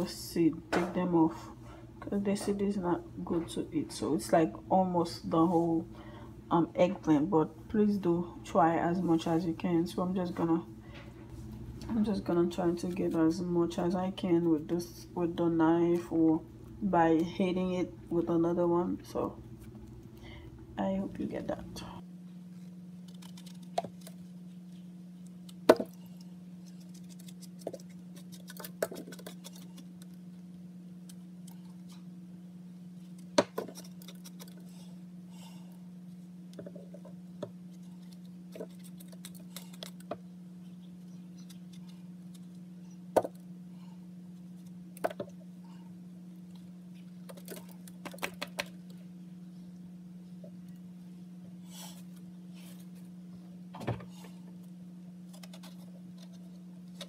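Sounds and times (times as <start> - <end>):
low hum: 0.0 - 57.0.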